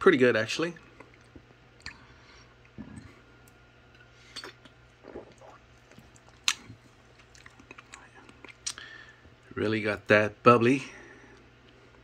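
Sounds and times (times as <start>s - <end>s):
low steady hum: 0.0s - 12.0s
soft mouth sounds: 0.9s - 9.0s.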